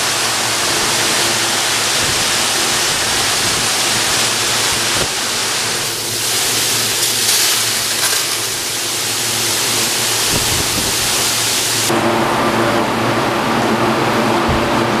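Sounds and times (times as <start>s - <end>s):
high-pressure water jets hissing: 0.0s - 11.9s
steady machine hum: 0.0s - 15.0s.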